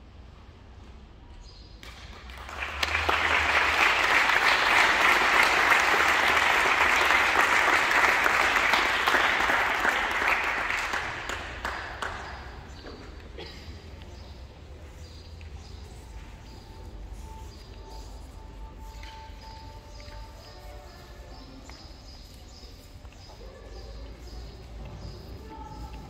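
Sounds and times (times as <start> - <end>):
audience applauding: 1.8 - 12.8.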